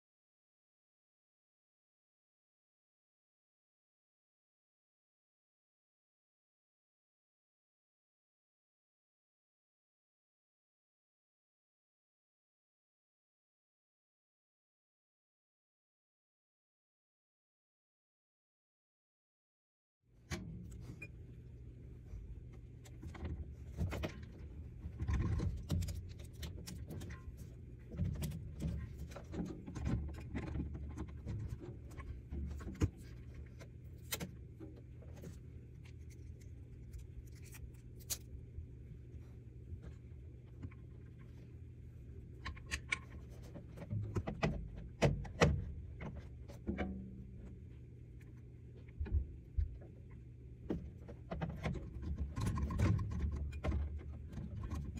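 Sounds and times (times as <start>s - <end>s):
steady low hum: 20.1s - 54.9s
clicks and knocks of objects handled: 22.5s - 38.3s, 42.3s - 47.5s, 50.7s - 54.9s.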